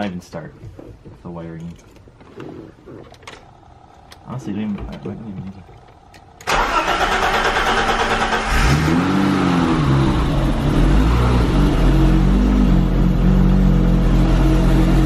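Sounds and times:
car engine starting and idling: 3.1 - 15.0.

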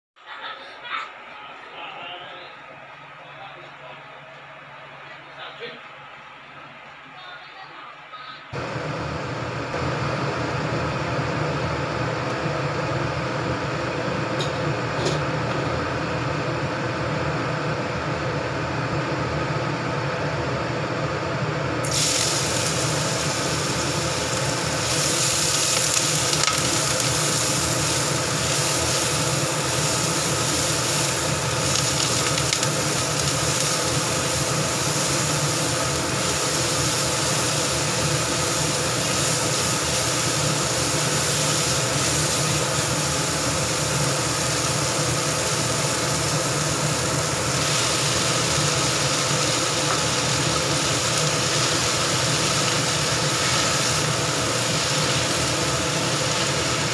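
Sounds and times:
vegetables sizzling in hot oil: 21.8 - 56.9.

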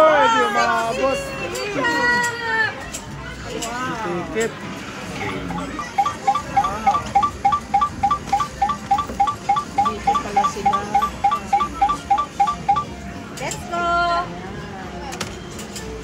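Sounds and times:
two-note electronic beep: 5.6 - 12.9.

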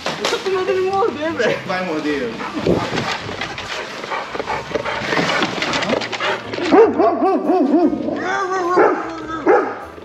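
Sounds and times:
dog barking: 6.6 - 9.9.

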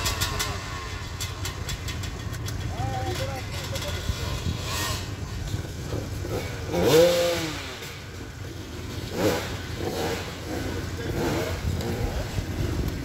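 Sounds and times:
utility vehicle engine revving: 0.0 - 13.0.

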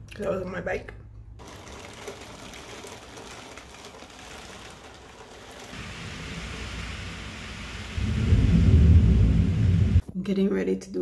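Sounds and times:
heavy rain falling: 1.4 - 10.0
low rumble: 5.8 - 10.0.

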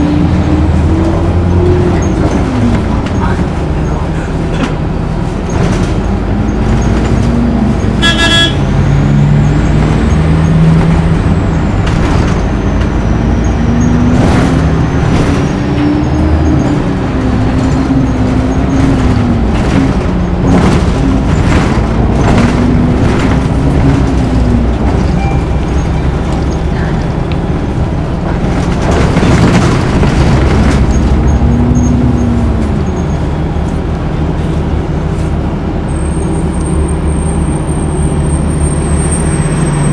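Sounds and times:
bus drive whine: 0.0 - 39.9
engine and road rumble: 0.0 - 39.9
horn toot: 8.0 - 8.7
knocks and rattles: 13.9 - 26.6, 27.7 - 33.8.

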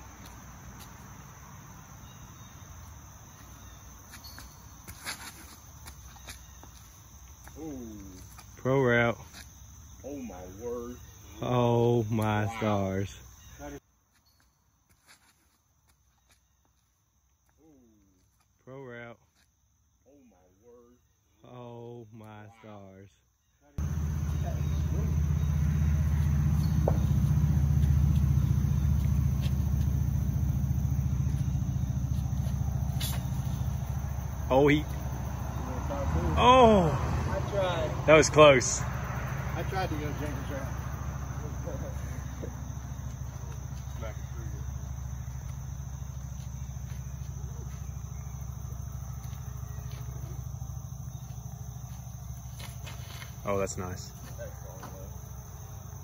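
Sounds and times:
high-pitched insect chorus: 0.0 - 56.0
low pulsing engine rumble: 23.8 - 38.1, 38.8 - 56.0.

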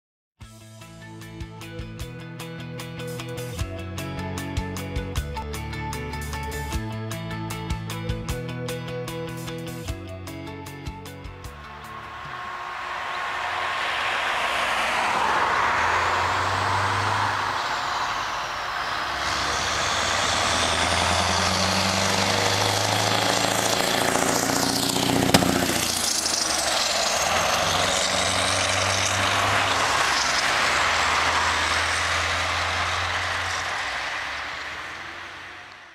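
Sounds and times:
road traffic passing: 10.4 - 35.9
truck engine passing: 10.5 - 35.9.

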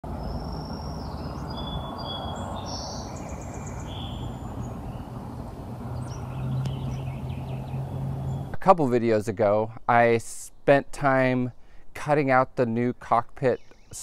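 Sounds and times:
songbirds singing: 0.1 - 14.0
low hum: 3.1 - 8.6.

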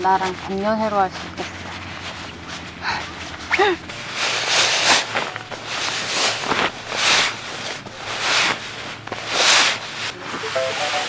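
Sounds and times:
nylon fabric rustling: 0.0 - 10.5
background music with bright notes: 10.6 - 11.0.

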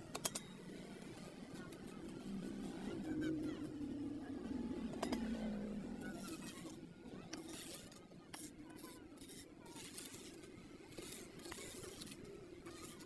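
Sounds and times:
faint scraping of cement: 6.0 - 13.0.

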